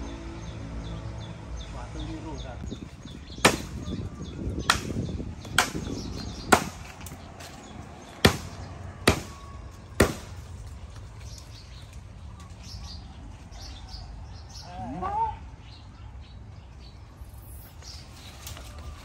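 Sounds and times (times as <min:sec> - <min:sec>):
machete chopping tree trunk: 0:03.4 - 0:04.0, 0:04.6 - 0:07.2, 0:08.1 - 0:10.5.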